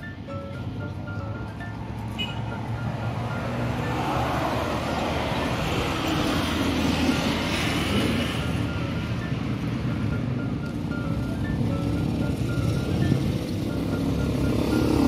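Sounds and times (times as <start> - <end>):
minivan driving past: 0.6 - 15.0.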